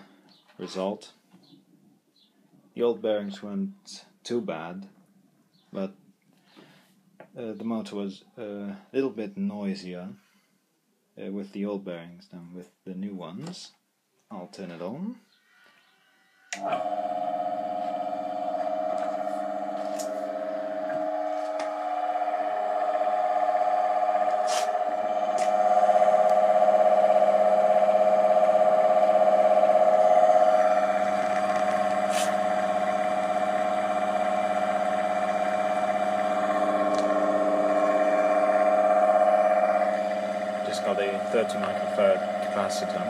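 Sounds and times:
electric motor humming and whining: 0:16.6 - 0:43.0.

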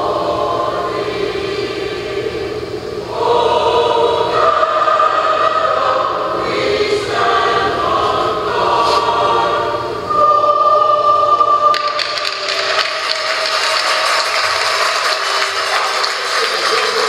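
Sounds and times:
crowd singing anthem: 0:00.0 - 0:14.5
crowd cheering and clapping: 0:11.7 - 0:17.0.

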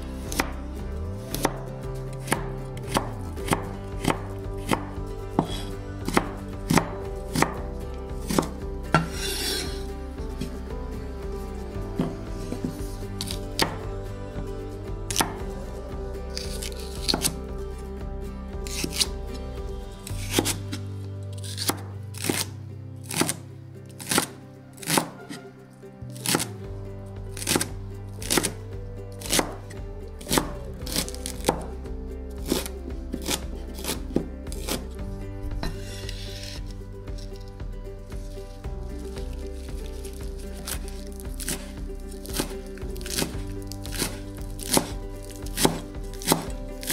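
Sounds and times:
background music: 0:00.0 - 0:46.9
cleaver chopping on a cutting board: 0:02.2 - 0:07.6, 0:08.2 - 0:09.8, 0:13.2 - 0:13.8, 0:15.1 - 0:15.4, 0:23.1 - 0:23.4, 0:24.0 - 0:25.1, 0:27.4 - 0:28.6, 0:29.2 - 0:29.6, 0:30.2 - 0:31.7, 0:42.3 - 0:46.9.

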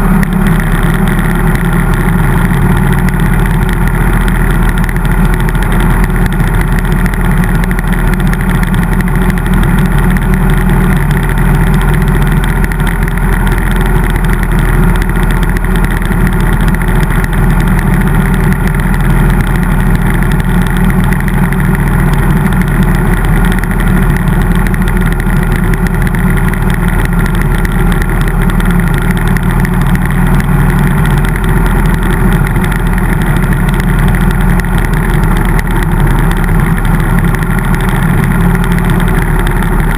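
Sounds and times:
motorcycle engine running: 0:00.0 - 0:39.9.

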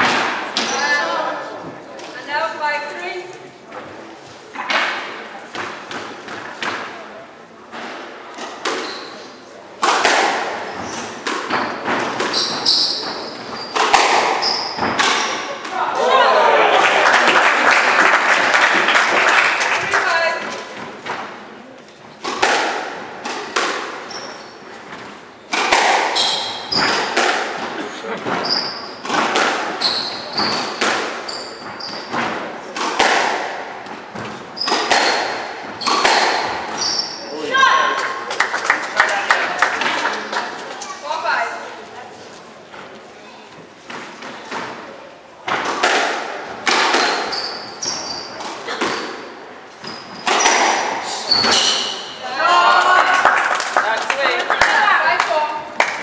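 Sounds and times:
squash ball hitting rackets and walls: 0:00.0 - 0:02.3, 0:03.8 - 0:15.8, 0:19.8 - 0:38.4, 0:43.8 - 0:52.2
shoes squeaking on wooden floor: 0:08.6 - 0:09.4, 0:10.6 - 0:15.6, 0:24.0 - 0:25.2, 0:26.0 - 0:32.4, 0:33.8 - 0:37.6, 0:47.0 - 0:52.2.

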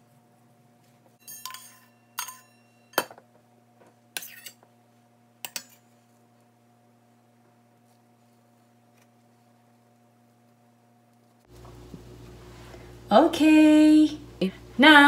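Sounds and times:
metal spoon clinking against steel bowl: 0:01.2 - 0:03.1.

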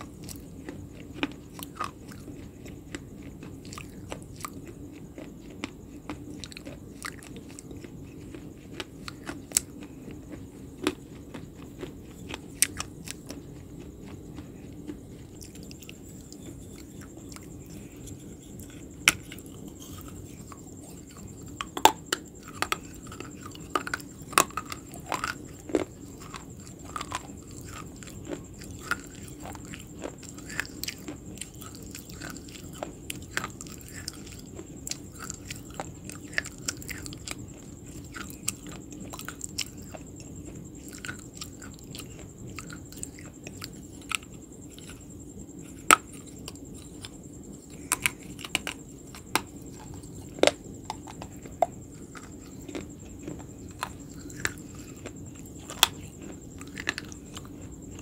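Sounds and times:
chewing crunchy food: 0:00.0 - 0:58.0.

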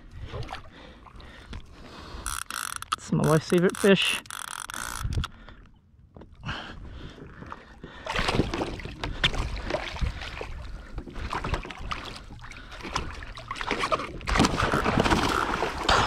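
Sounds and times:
knocks and clatter on a kayak: 0:08.2 - 0:16.0.

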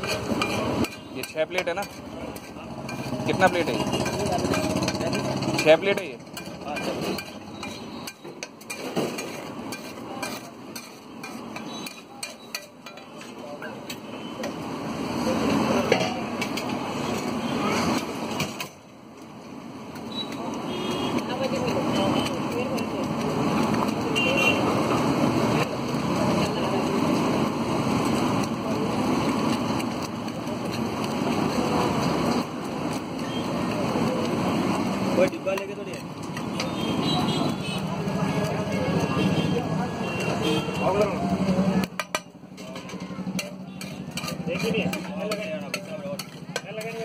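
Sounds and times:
food sizzling: 0:00.0 - 0:13.0, 0:19.3 - 0:40.2
metal spatula scraping on steel: 0:00.0 - 0:14.5, 0:41.8 - 0:47.0
food sizzling on a griddle: 0:21.0 - 0:37.0
hand masher mashing food: 0:42.6 - 0:47.0.

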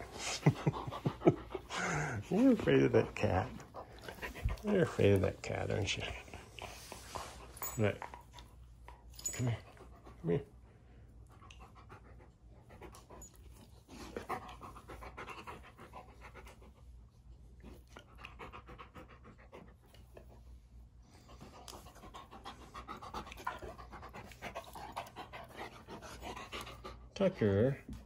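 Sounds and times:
dog panting: 0:00.0 - 0:28.0.

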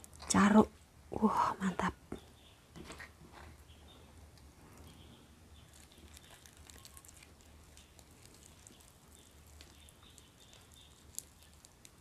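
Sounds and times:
fingers tearing fried fish: 0:05.7 - 0:12.0.

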